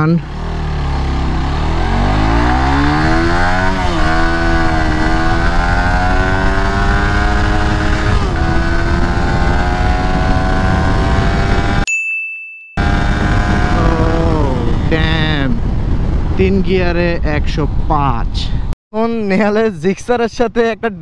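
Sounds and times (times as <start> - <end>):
motorcycle engine accelerating: 0.0 - 11.9, 12.8 - 16.5.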